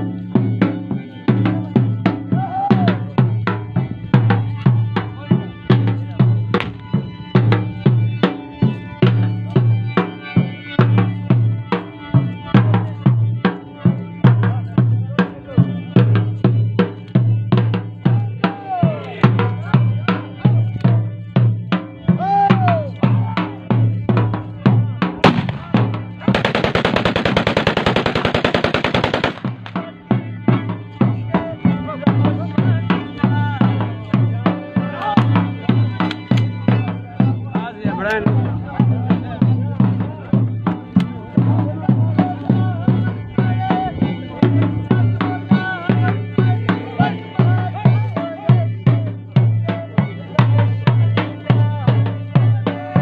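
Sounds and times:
drum beating fast rhythm: 0:20.9 - 0:43.2
rapid automatic gunfire: 0:26.3 - 0:29.7.

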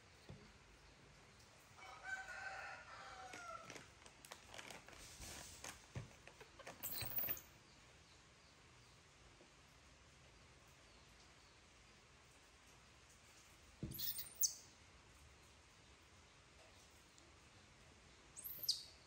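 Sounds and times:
rustling and crinkling: 0:02.9 - 0:07.5.

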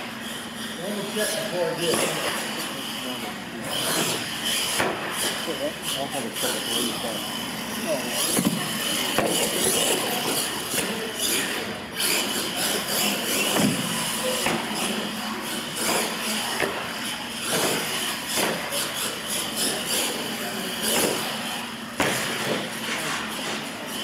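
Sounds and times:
people talking: 0:00.8 - 0:04.3, 0:05.3 - 0:17.6, 0:18.4 - 0:21.8.

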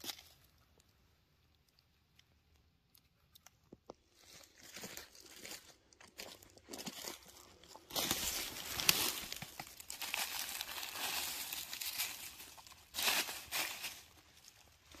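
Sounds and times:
dry leaves crackling and rustling: 0:04.2 - 0:15.0.

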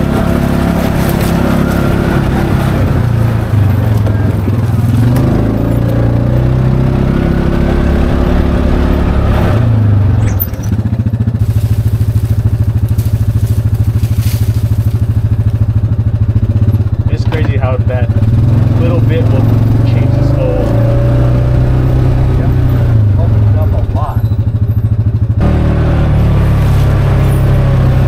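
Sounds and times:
utility vehicle engine: 0:00.0 - 0:28.0.

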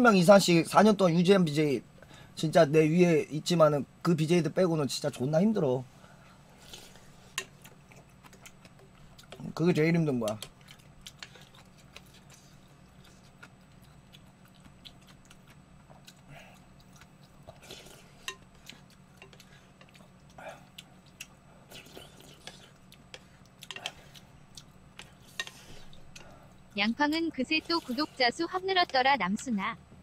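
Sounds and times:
faint low hum: 0:00.0 - 0:30.0
chewing: 0:06.6 - 0:09.6, 0:10.3 - 0:29.0.

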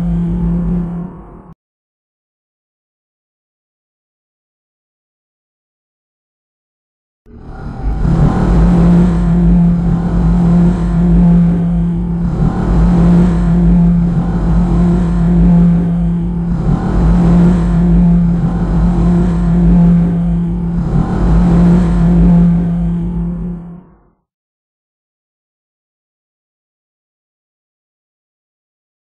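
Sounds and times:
deep rumble: 0:00.0 - 0:01.6, 0:07.3 - 0:24.2
loud low drone: 0:00.0 - 0:01.6, 0:07.3 - 0:24.2.

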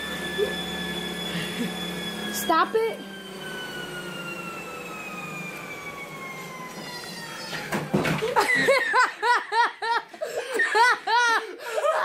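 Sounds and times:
treadmill motor whining: 0:00.0 - 0:12.0
people laughing: 0:08.2 - 0:12.0.

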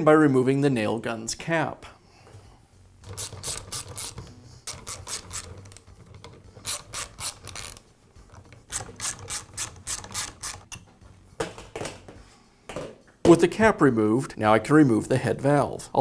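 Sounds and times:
ratchet wrench clicking: 0:03.0 - 0:07.8, 0:08.7 - 0:10.8.

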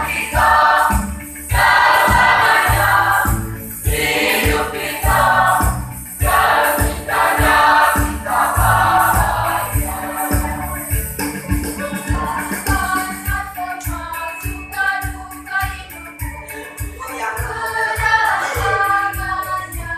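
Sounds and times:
youth choir singing: 0:00.0 - 0:11.0, 0:11.8 - 0:19.9
electronic keyboard with steady beat: 0:00.0 - 0:19.9.

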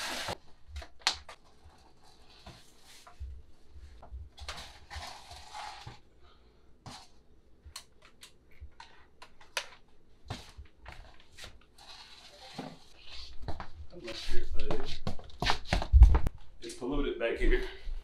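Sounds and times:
objects and cables being handled: 0:00.0 - 0:06.1, 0:06.8 - 0:16.3
footsteps on wooden floor: 0:12.6 - 0:16.5.

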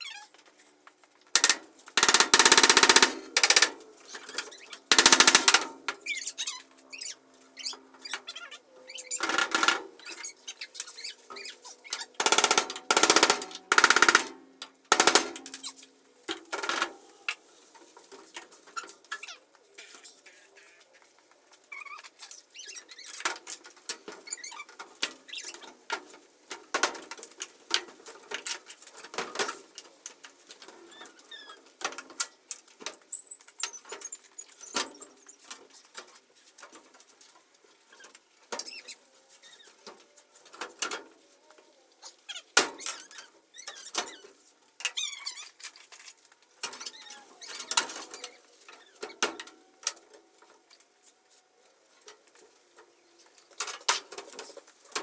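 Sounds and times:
wooden boards knocking and squeaking: 0:01.3 - 0:17.5, 0:42.3 - 0:51.2.

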